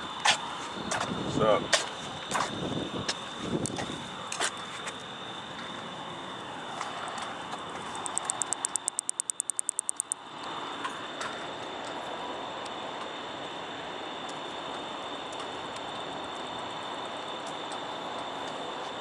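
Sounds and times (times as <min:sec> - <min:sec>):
katydid ticking: 0:07.9 - 0:10.2.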